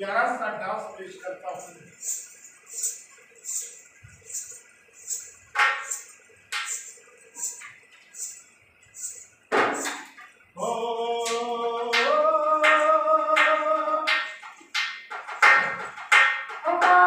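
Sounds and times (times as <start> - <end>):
high-pitched percussion strikes: 1.6 - 10.1
steady drumbeats: 11.2 - 17.0.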